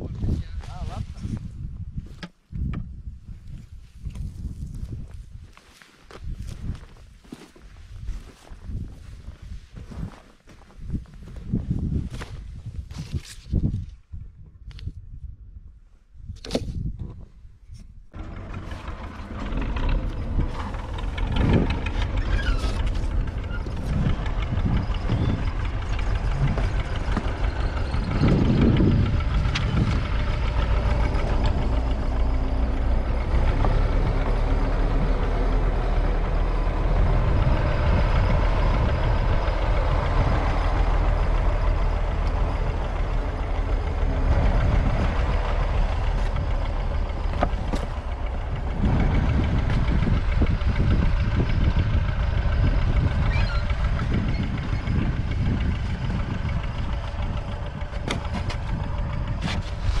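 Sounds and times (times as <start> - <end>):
vehicle engine idling: 18.1 - 60.0.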